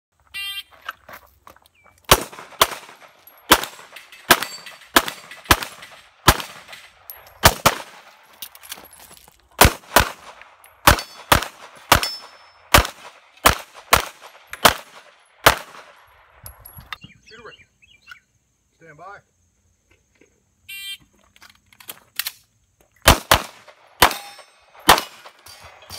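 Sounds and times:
pistol shots with echo: 0:02.1 - 0:08.2, 0:09.6 - 0:16.0, 0:23.0 - 0:25.4.

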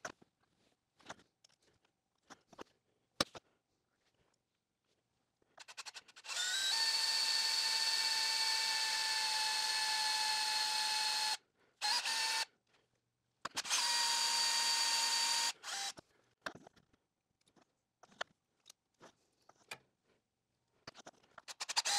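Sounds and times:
drill motor whine: 0:06.2 - 0:12.5, 0:13.6 - 0:16.0.

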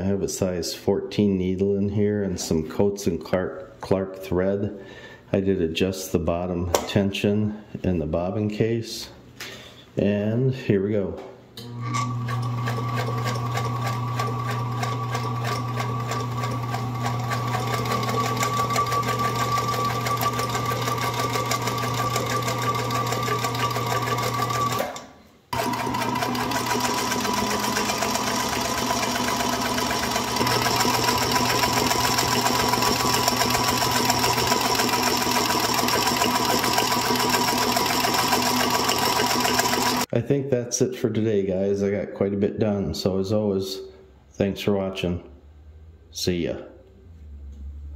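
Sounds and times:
sewing machine running: 0:11.7 - 0:40.1.

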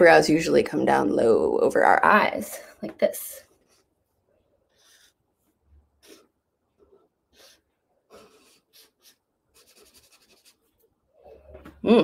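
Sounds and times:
marker drawing on paper: 0:04.6 - 0:10.8.

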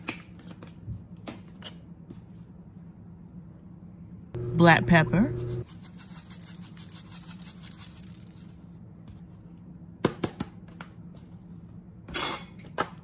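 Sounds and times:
pepper shaker rattling: 0:05.6 - 0:08.7.

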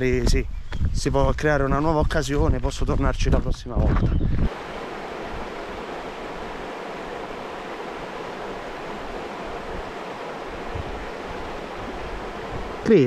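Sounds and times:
river water rushing: 0:04.5 - 0:13.0.

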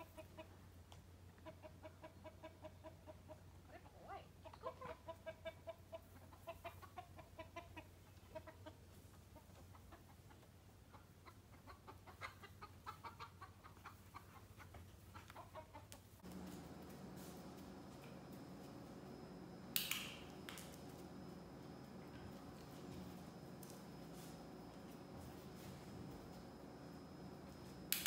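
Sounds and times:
chickens clucking: 0:01.3 - 0:27.9
low room hum: 0:16.0 - 0:28.0.

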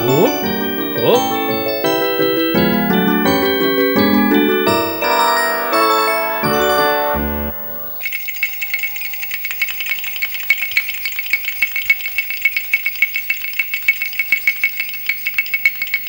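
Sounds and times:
keyboard phrase: 0:00.0 - 0:08.0.

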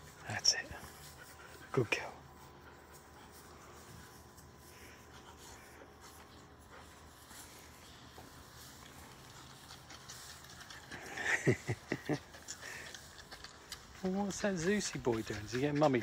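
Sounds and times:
puppies rustling and snuffling: 0:00.0 - 0:16.0
small ticks: 0:08.2 - 0:16.0.

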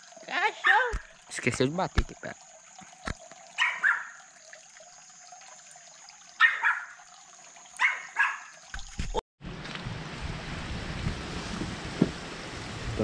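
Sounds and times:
dog barking: 0:03.6 - 0:04.2, 0:06.4 - 0:07.0, 0:07.8 - 0:08.5.

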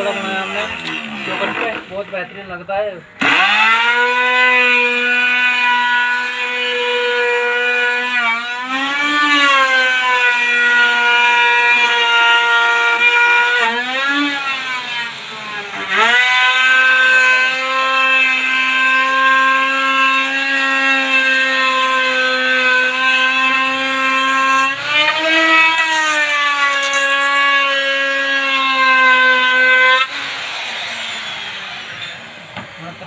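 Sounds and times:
electric router cutting wood: 0:00.0 - 0:02.4, 0:03.2 - 0:33.0.

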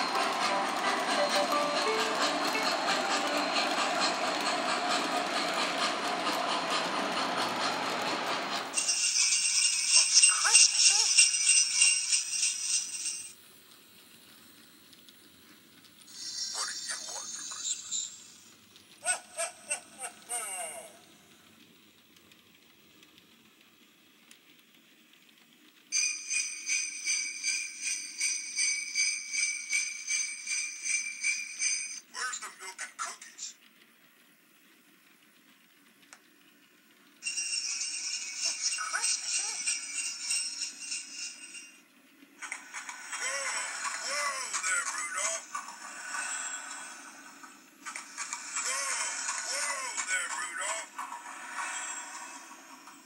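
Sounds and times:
bell ringing rapidly: 0:00.0 - 0:06.6
jingling bells: 0:00.0 - 0:06.7, 0:08.8 - 0:13.4, 0:25.9 - 0:32.0, 0:37.2 - 0:41.8
model train rumbling on track: 0:00.0 - 0:53.0.

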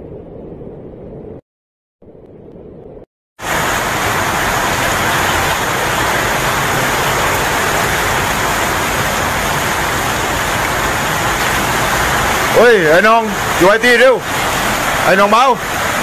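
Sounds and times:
floodwater rushing: 0:03.4 - 0:16.0.

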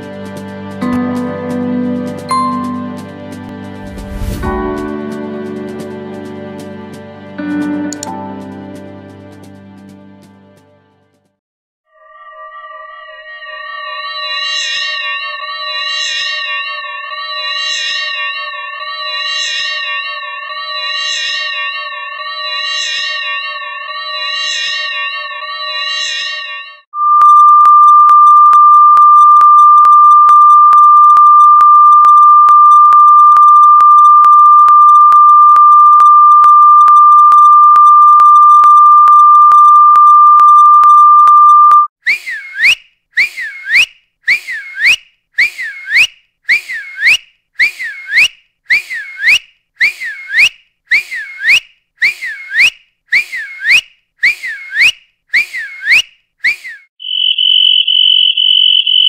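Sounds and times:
steady high tone: 0:02.3 - 0:03.1, 0:03.8 - 0:04.9, 0:27.0 - 0:41.9
swooping whistle-like chirps: 0:27.0 - 0:59.0.

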